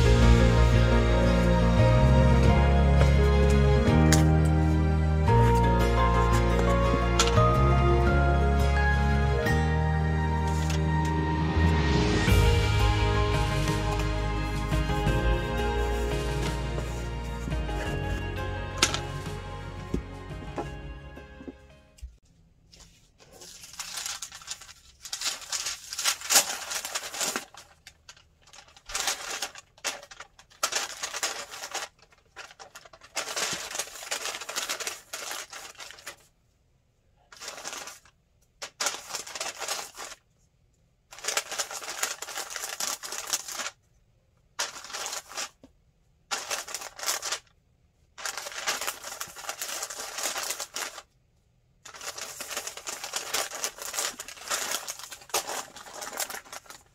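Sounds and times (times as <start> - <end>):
paper bag crinkling and rustling: 5.4 - 7.5, 10.5 - 10.9, 13.9 - 19.2, 22.7 - 36.3, 37.4 - 40.2, 41.1 - 43.8, 44.6 - 45.7, 46.3 - 47.5, 48.2 - 51.1, 51.9 - 56.9.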